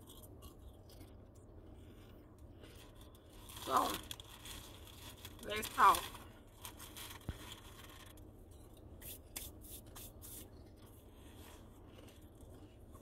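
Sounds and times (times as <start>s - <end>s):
potato chips being chewed: 0.0s - 4.8s.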